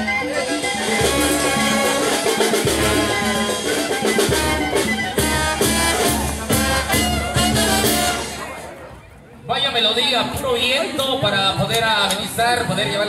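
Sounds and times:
drums with a steady beat: 0.0 - 8.7
brass band playing: 0.0 - 8.9.

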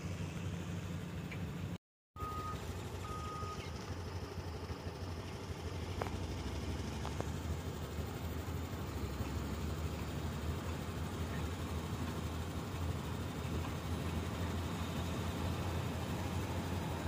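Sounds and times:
vehicle engine rumble: 0.0 - 17.0
short high beeps: 2.2 - 3.6.

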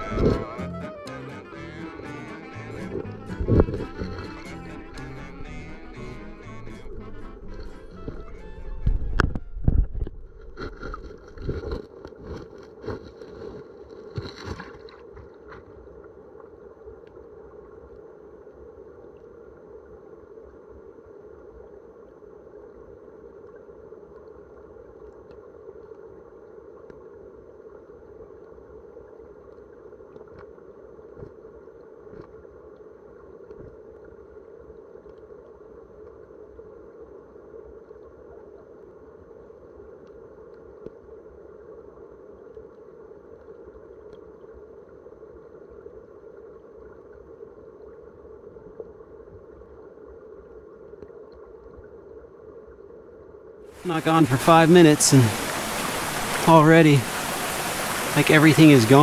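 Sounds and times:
muffled underwater creek rush: 0.0 - 0.6, 1.4 - 59.0.

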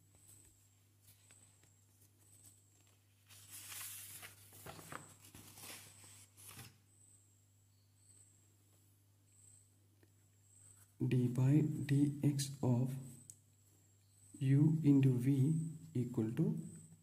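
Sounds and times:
paper rustling and sliding: 1.0 - 6.8.

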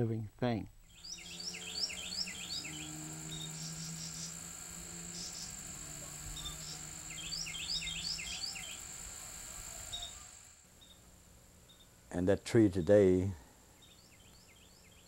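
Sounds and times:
faint low hum: 0.0 - 15.0
insects trilling: 0.8 - 11.1
bird chirping: 0.8 - 12.0, 13.8 - 15.0.

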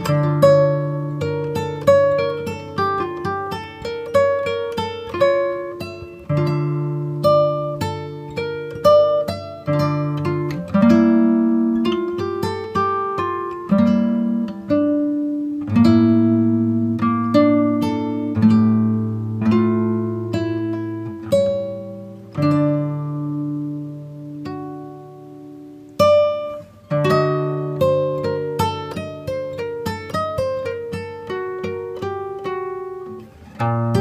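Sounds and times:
plucked string music: 0.0 - 34.0.

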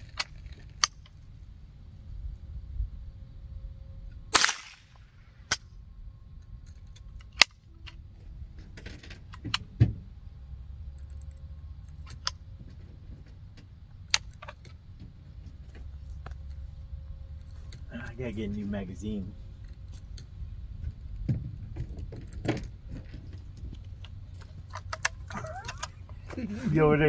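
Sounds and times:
rifle shots: 4.3 - 5.6.

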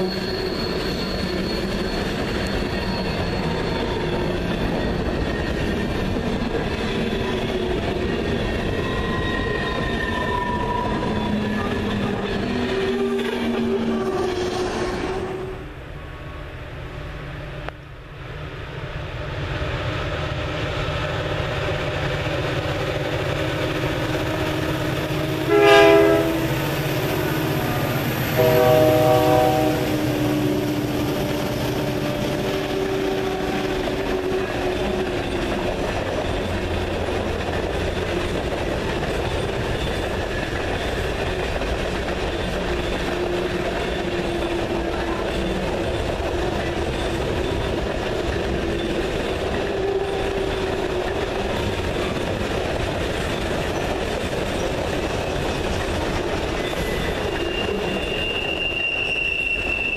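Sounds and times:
freight train rumble and wheel clatter: 0.0 - 59.9
locomotive horn blasts: 24.1 - 33.5.

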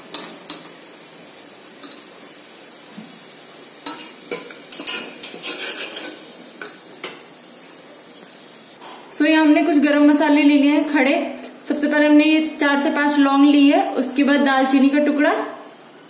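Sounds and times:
hot oil sizzling: 0.0 - 8.8
skimmer scraping metal pot: 4.3 - 6.2.

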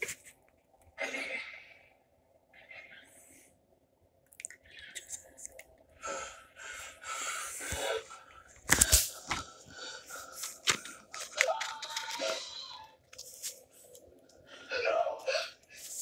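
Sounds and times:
device handling rustling and scraping: 8.5 - 12.5.

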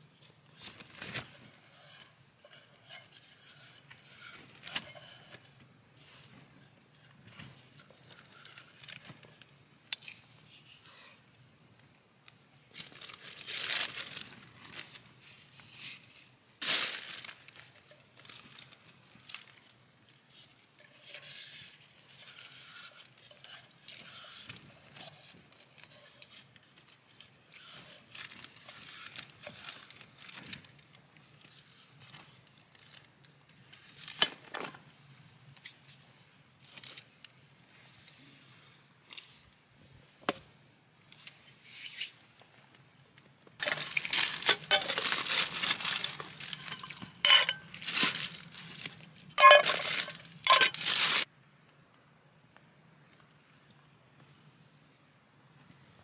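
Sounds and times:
plastic bag crinkling: 0.4 - 2.0, 12.7 - 15.2, 16.6 - 19.9, 23.9 - 34.8, 43.6 - 51.3
utensil scraping metal pot: 1.1 - 9.0, 20.8 - 26.5, 43.6 - 48.3, 49.4 - 51.3.

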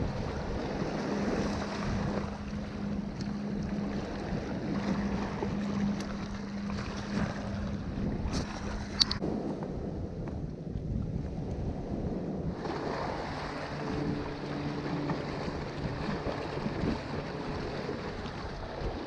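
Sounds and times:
steady low hum: 0.0 - 19.0
wind buffeting microphone: 0.0 - 19.0
waves washing against rocks: 12.5 - 19.0.

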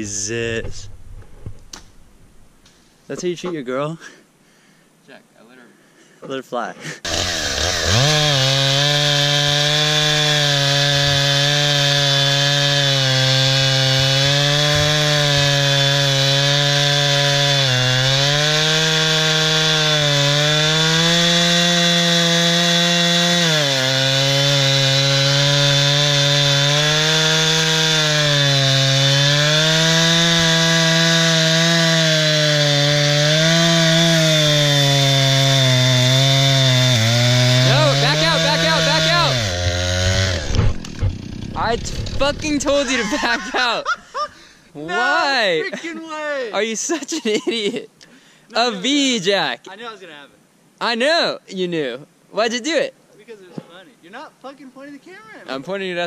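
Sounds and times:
chainsaw cutting log: 7.0 - 43.7.

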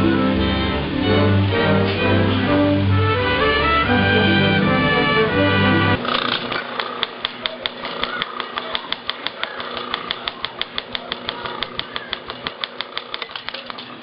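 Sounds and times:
projector rapid clicking: 6.0 - 14.0.

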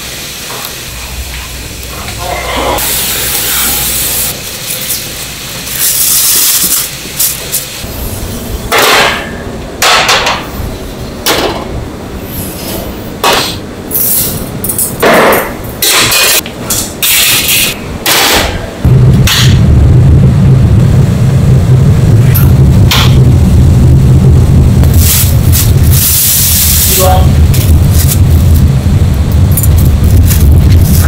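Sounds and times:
gas burners roaring: 0.0 - 31.0
metal trays and pans clanking: 14.7 - 18.6.

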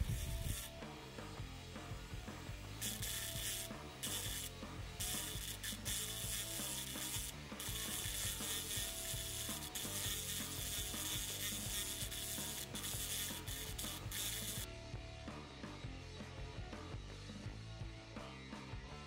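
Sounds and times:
power carver tapping wood: 2.8 - 14.7.

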